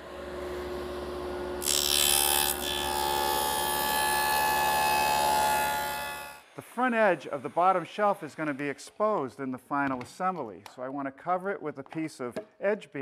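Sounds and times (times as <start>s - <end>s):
table saw blade humming: 0.0s - 8.5s
table saw cutting wood: 0.0s - 9.0s.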